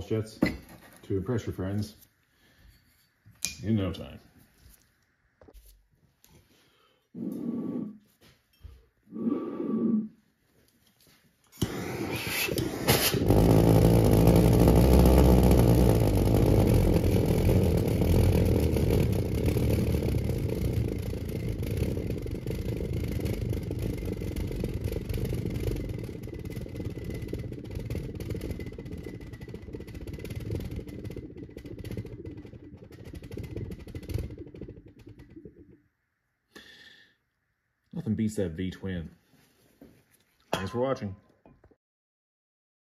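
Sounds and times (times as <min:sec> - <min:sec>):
pulsejets pulsing drone: 0:11.6 - 0:35.6.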